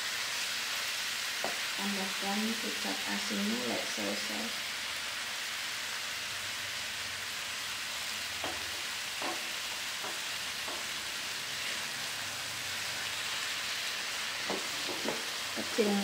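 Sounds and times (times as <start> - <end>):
noodles sizzling in a wok: 0.0 - 16.0
spatula stirring in a wok: 8.2 - 15.9.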